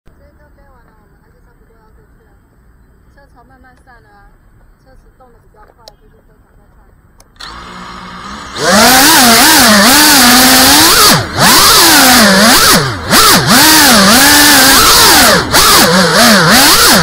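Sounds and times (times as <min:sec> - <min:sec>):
quadcopter motors whining: 0:07.3 - 0:17.0.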